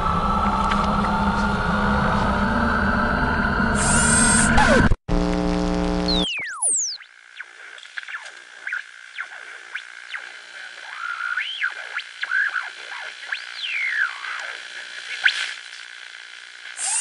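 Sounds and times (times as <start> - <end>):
steady high drone: 0.0 - 5.0
swooping synthesizer tones: 0.0 - 5.0.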